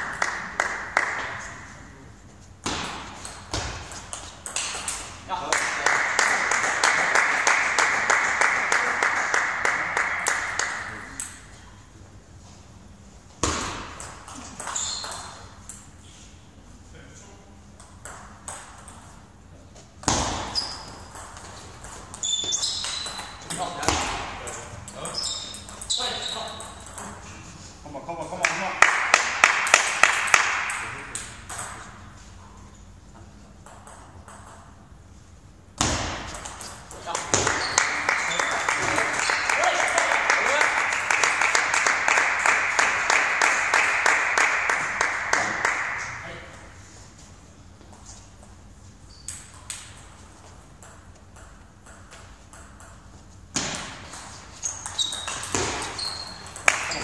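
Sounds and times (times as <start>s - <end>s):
sports hall noise: 0.0s - 57.0s
table tennis ball bouncing: 2.6s - 7.4s, 13.4s - 15.9s, 17.8s - 19.2s, 20.0s - 27.3s, 29.4s - 32.0s, 33.6s - 34.9s, 35.8s - 40.5s, 49.1s - 57.0s
shoe squeaks on sports floor: 14.7s - 15.4s, 20.4s - 21.1s, 22.2s - 23.5s, 25.0s - 26.6s, 37.4s - 38.5s, 49.0s - 49.5s, 54.5s - 57.0s.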